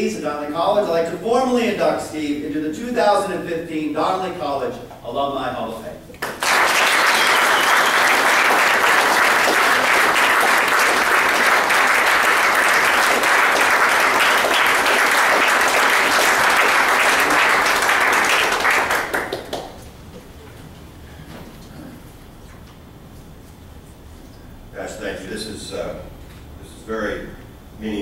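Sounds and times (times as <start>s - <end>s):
audience applauding: 6.2s - 19.8s.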